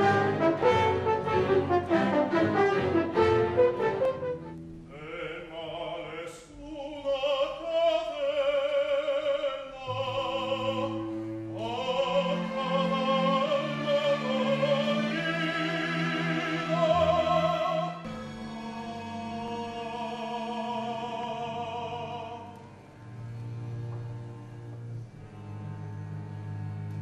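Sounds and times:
orchestra holding low notes: 0.0 - 6.9, 9.8 - 27.0
man singing opera: 4.9 - 22.6.

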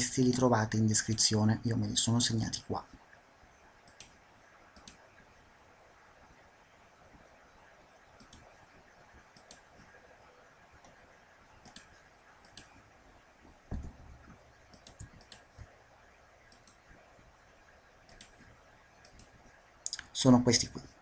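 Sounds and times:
background hiss: 0.0 - 21.0
computer mouse clicks: 3.8 - 5.0, 8.2 - 8.6, 9.3 - 10.0, 11.6 - 12.8, 13.8 - 15.7, 16.4 - 16.9, 18.1 - 20.0
low thump: 13.7 - 14.2.

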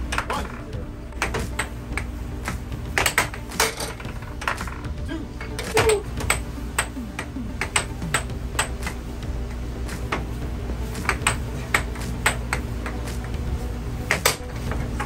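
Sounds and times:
steady low hum: 0.0 - 15.0
air hockey puck clacking: 1.2 - 9.0, 10.9 - 13.4, 14.1 - 15.0.

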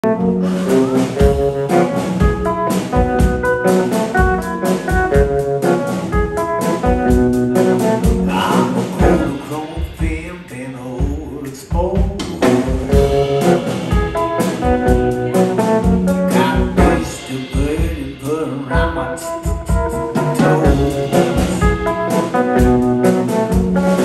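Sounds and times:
blues band playing: 0.0 - 24.0.

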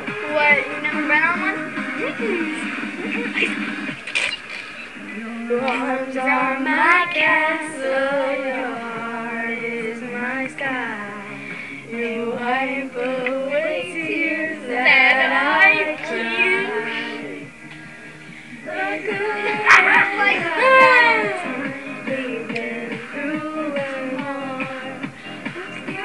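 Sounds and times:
pop song with female vocal: 5.0 - 17.5, 18.5 - 26.0
young girls singing along: 5.0 - 17.5, 18.6 - 26.0.

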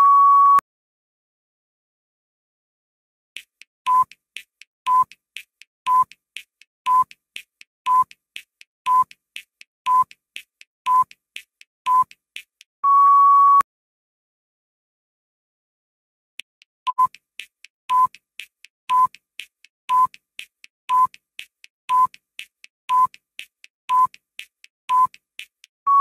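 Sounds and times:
countdown timer beeps: 3.9 - 4.2, 4.9 - 5.2, 5.9 - 6.2, 6.9 - 7.2, 7.9 - 8.2, 8.9 - 9.2, 9.9 - 10.2, 10.9 - 11.2, 11.9 - 12.2, 16.9 - 17.2, 17.9 - 18.2, 18.9 - 19.2, 19.9 - 20.2, 20.9 - 21.2, 21.9 - 22.2, 22.9 - 23.2, 23.9 - 24.2, 24.9 - 25.2.

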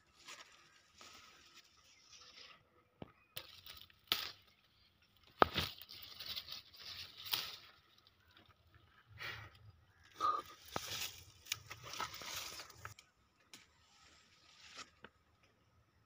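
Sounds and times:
leaves and stems rustling: 0.0 - 2.7, 3.3 - 8.6, 10.4 - 13.1.

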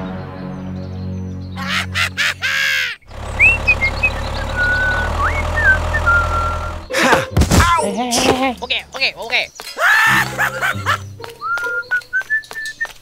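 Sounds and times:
high squeaky chattering: 3.0 - 7.1
small motor humming: 3.1 - 6.9
toy tractor engine running: 3.1 - 7.0
whistled chirps: 3.4 - 6.9, 11.4 - 13.0.

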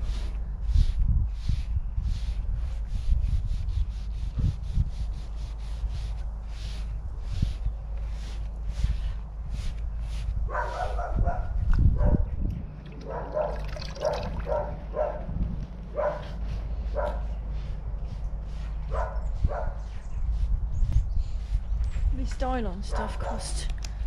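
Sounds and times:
sponge rubbing cloth: 0.0 - 11.0
dog barking: 10.5 - 12.3, 13.0 - 15.3, 15.9 - 17.3, 18.9 - 19.8
hand splashing in liquid: 12.8 - 14.6.

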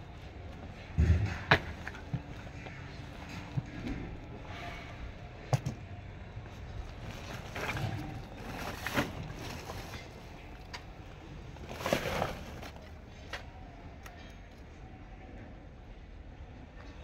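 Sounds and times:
low background hum: 0.0 - 17.0
sacks rustling: 6.5 - 12.9.

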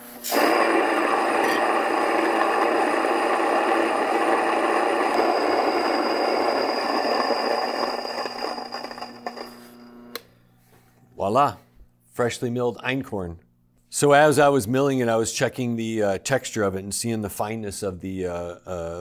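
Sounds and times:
motor hum: 0.2 - 10.3
stone mill grinding grain: 0.3 - 9.9.

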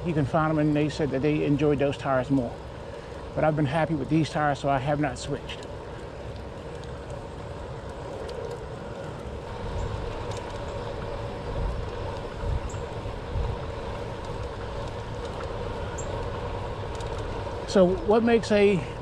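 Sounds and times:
bicycle tyres rolling on asphalt: 0.0 - 19.0
wind buffeting microphone: 7.5 - 19.0.

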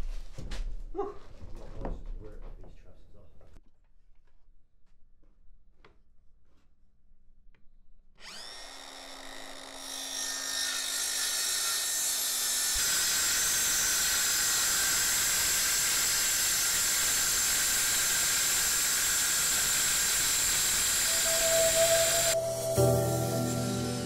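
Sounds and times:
circular saw whining: 8.2 - 24.0
saw blade cutting wood: 8.2 - 24.0.

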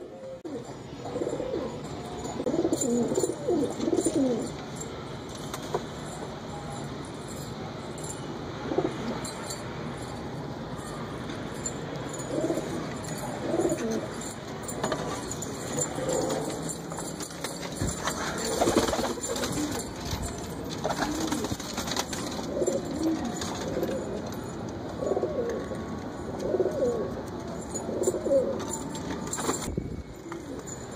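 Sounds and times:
pigeons cooing: 0.0 - 4.6, 12.2 - 14.2, 15.6 - 16.8, 17.9 - 20.0, 20.8 - 24.4, 25.0 - 28.8.

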